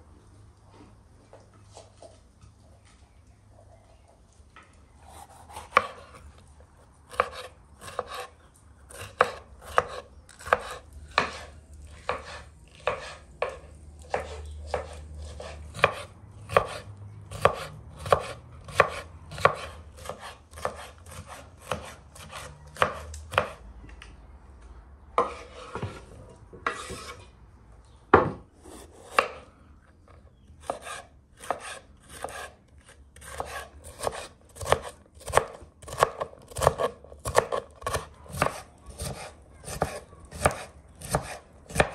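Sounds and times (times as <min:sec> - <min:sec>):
knife chopping on wooden board: 0:05.2 - 0:06.2, 0:07.1 - 0:08.3, 0:08.9 - 0:23.6, 0:25.2 - 0:26.0, 0:28.1 - 0:29.4, 0:30.6 - 0:32.5, 0:33.2 - 0:41.9.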